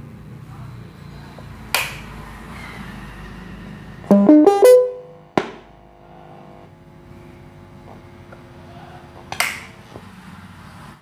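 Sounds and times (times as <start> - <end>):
electronic bell notes: 4.1 - 5.2.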